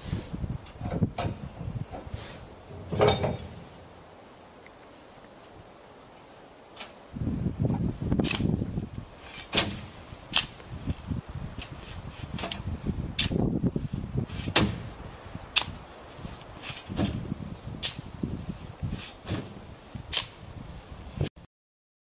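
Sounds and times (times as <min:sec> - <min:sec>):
sand tipped into metal wagon: 0:01.9 - 0:04.0, 0:09.2 - 0:10.6, 0:11.6 - 0:20.4
steel shovel scraping sand: 0:02.0 - 0:04.0, 0:09.2 - 0:21.2.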